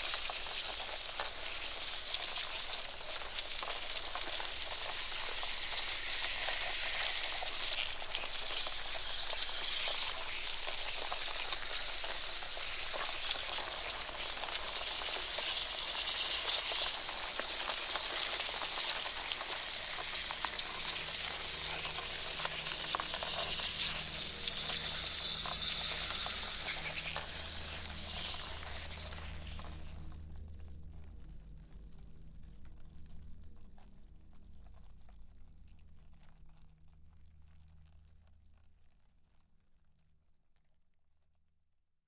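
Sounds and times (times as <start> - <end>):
crackling hiss of skittering: 0.0 - 35.2
faint low hum: 16.4 - 39.9.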